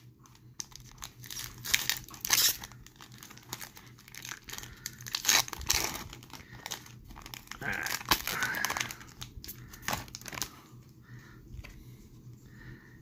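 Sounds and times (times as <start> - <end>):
wrapper crinkling and tearing: 0.2 - 10.5.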